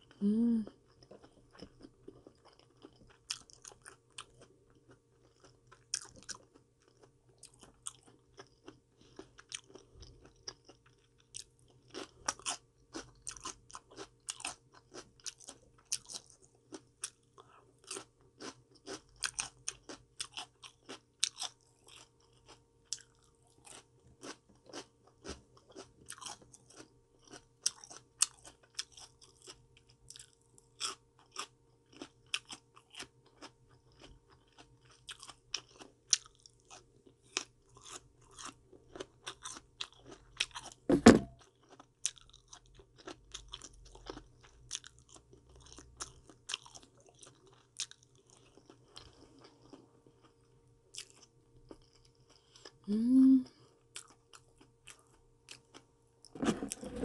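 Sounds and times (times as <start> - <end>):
person chewing crunchy vegetables: 0.0 - 52.9, 53.5 - 57.0.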